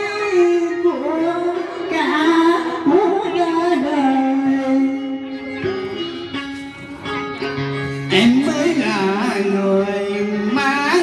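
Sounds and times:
woman singing: 0.0s - 6.1s.

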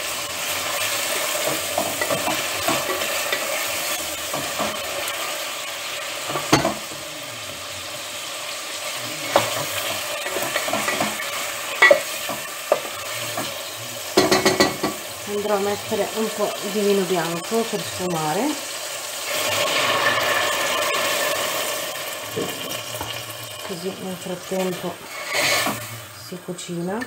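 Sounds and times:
meat sizzling in a pot: 0.0s - 27.0s
wooden spoon stirring: 0.4s - 5.4s
spoon knocking against pot: 6.3s - 6.9s, 11.8s - 13.5s, 14.2s - 15.0s.

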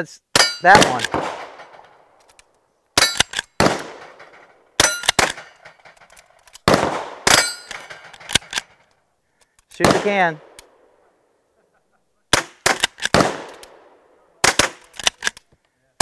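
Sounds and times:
steel plate target clanging: 0.4s - 1.0s, 3.0s - 3.4s, 4.0s - 6.3s, 7.3s - 8.9s
rifle shots: 0.4s - 2.1s, 3.0s - 6.0s, 6.6s - 8.8s, 9.8s - 10.9s, 12.3s - 15.2s.

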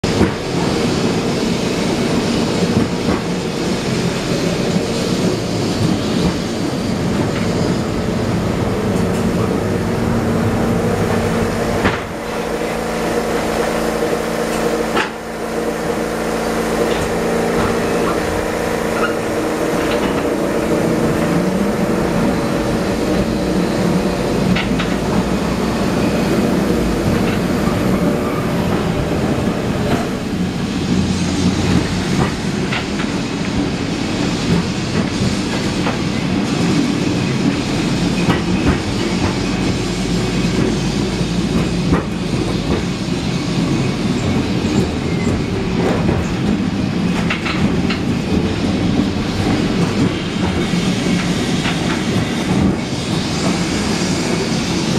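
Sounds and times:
tram rumbling and rattling: 0.0s - 54.9s.

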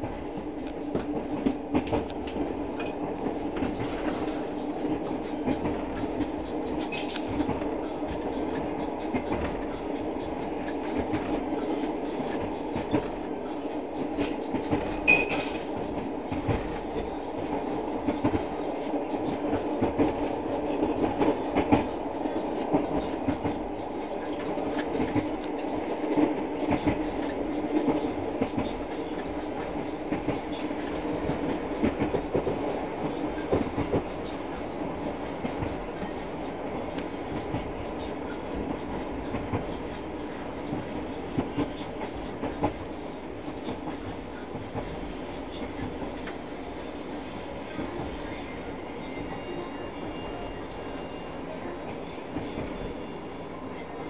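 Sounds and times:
rail clicks: 0.0s - 54.0s
train wheels rumbling on rails: 0.0s - 54.0s
brief high squeak: 15.0s - 15.6s.

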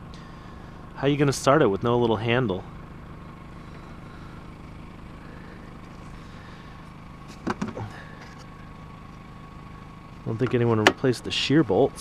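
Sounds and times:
steady low hum: 0.0s - 12.0s
knocks and rattles of handling: 7.3s - 8.5s.

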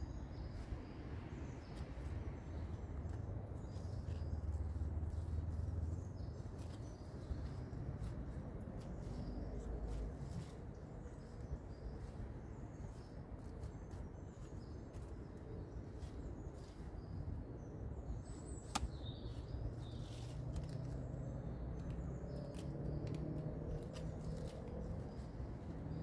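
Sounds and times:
low steady rumble: 0.0s - 26.0s
small birds chirping: 0.0s - 26.0s
plant stems snapping: 18.6s - 19.1s, 21.8s - 25.0s.

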